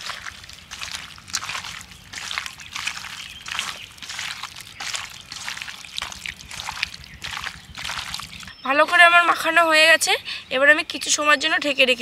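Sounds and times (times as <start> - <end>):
wet hand mixing strokes: 0.0 - 8.5.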